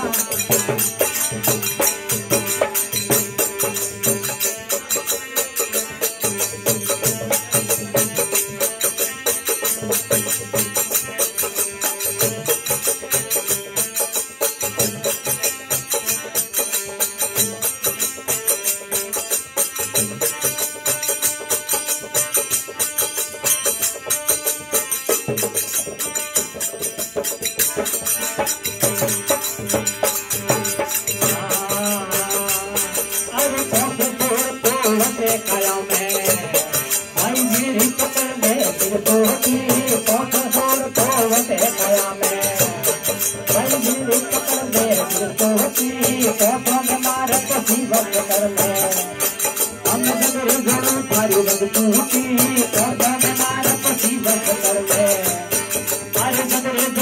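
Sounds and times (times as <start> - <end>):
man singing: 0.0 - 13.1, 27.6 - 57.0
harmonium chords: 0.0 - 57.0
small hand cymbals: 0.0 - 57.0.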